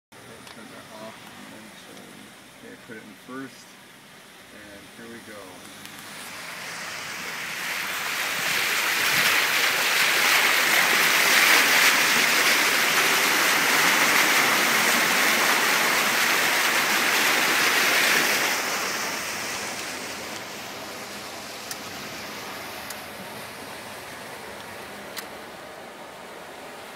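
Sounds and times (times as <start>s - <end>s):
floodwater rushing around car: 0.2s - 26.9s.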